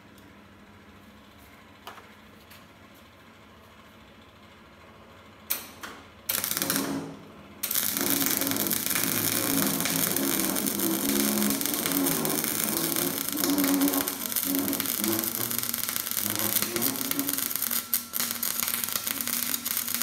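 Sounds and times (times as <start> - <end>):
welding arc burning: 6.3 - 20.0.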